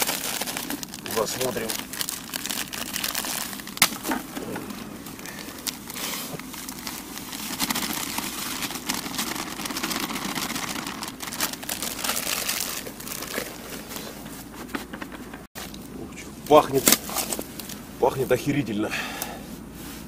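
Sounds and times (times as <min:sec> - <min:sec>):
plastic bag crinkling: 0:00.0 - 0:15.4.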